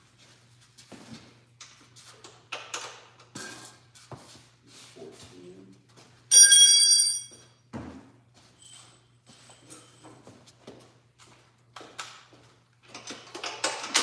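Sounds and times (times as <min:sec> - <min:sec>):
loud metallic ring: 0:06.3 - 0:07.4
clicks and knocks of tools: 0:12.8 - 0:14.0.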